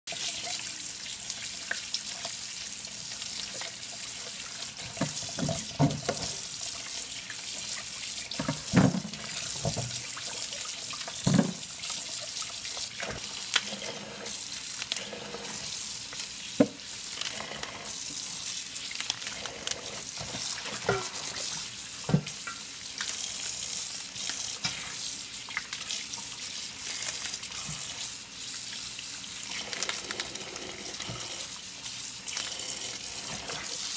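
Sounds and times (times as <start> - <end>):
water splashing over vegetables: 0.1 - 17.3
tap water running into steel sink: 0.1 - 33.9.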